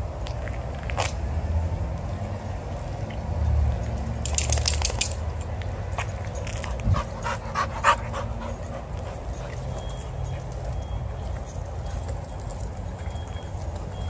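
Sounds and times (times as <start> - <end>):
dog panting: 6.7 - 10.6.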